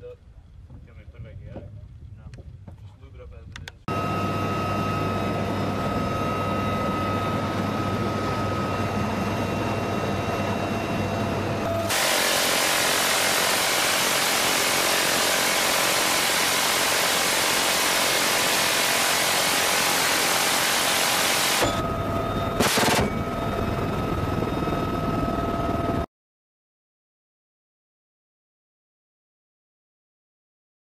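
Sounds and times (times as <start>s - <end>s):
helicopter turbine whine: 2.6s - 26.1s
rotor drone: 3.6s - 26.1s
gatling gun firing: 22.6s - 23.2s.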